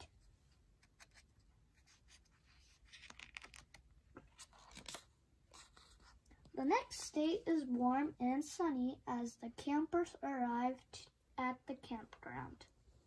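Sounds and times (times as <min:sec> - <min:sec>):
paper page turning: 0:00.8 - 0:06.2.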